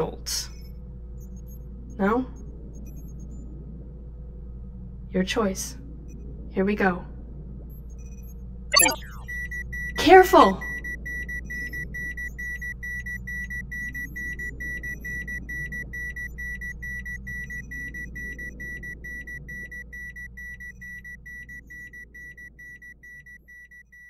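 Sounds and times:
rapid electronic alarm beeping: 8.8s - 10.0s, 10.6s - 24.0s.

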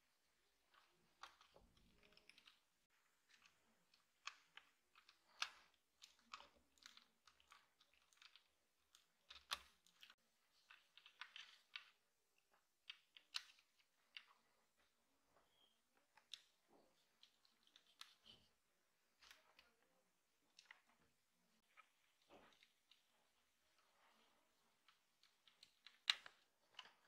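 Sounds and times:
fingers handling plastic parts: 0.2s - 27.0s.

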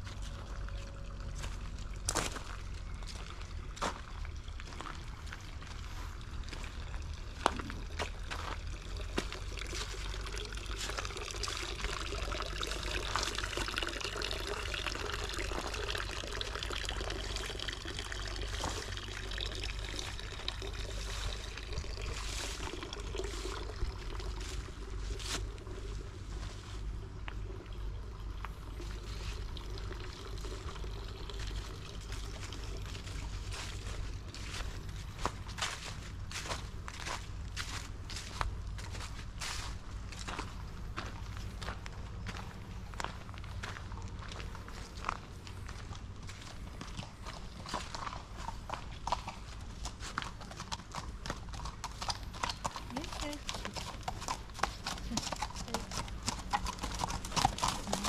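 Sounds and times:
water trickling and splashing: 0.0s - 58.0s.

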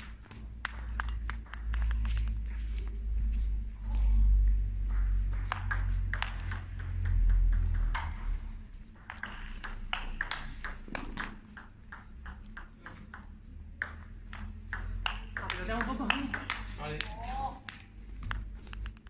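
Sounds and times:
table tennis ball ticks and bounces: 0.0s - 19.0s
low rumble: 1.8s - 8.8s.

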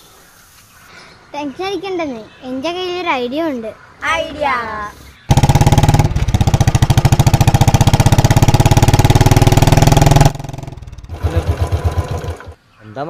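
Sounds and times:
loud motorcycle exhaust: 5.3s - 12.6s.

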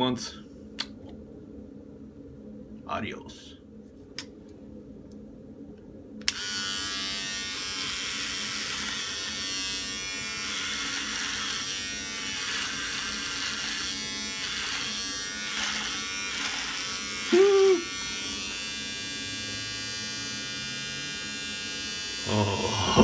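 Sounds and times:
hair clipper buzzing: 6.2s - 23.0s
clipper cutting beard hair: 7.5s - 18.0s.

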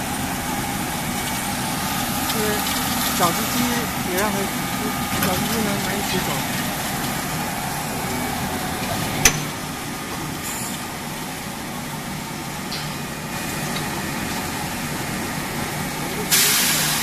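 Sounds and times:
steady machine noise: 0.0s - 17.0s.

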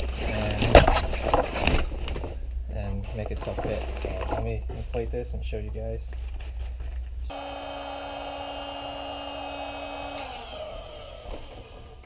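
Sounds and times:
electric air pump whining: 7.3s - 12.0s.

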